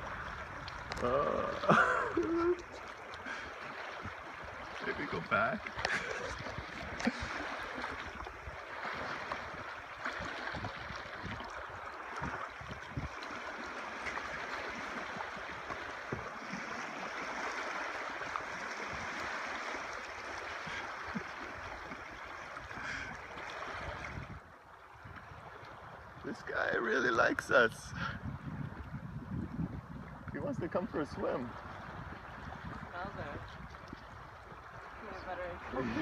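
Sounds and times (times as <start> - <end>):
water washing around canoe: 0.0 - 36.0.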